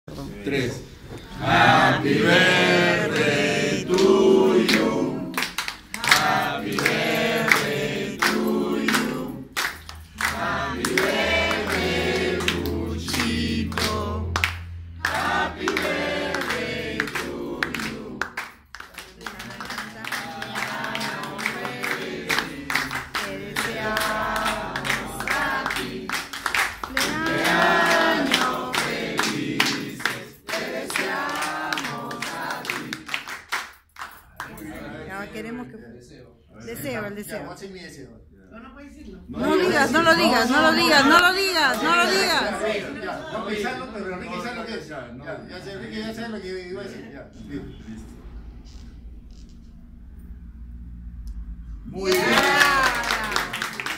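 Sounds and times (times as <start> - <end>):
group singing: 1.0 - 33.5, 34.4 - 35.5, 39.2 - 44.0
hands clapping: 3.9 - 34.7, 52.1 - 53.9.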